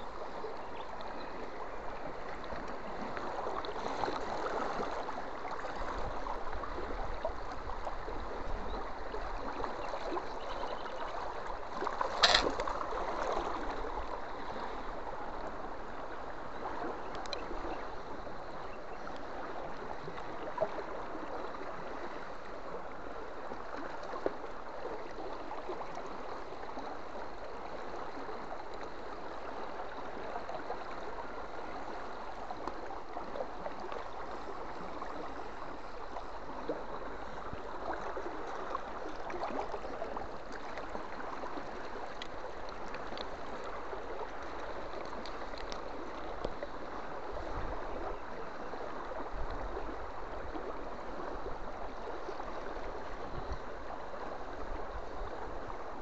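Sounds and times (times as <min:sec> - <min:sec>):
river running over stones: 0:00.0 - 0:56.0
faint clicks: 0:17.1 - 0:17.5, 0:42.1 - 0:43.4, 0:44.4 - 0:46.7.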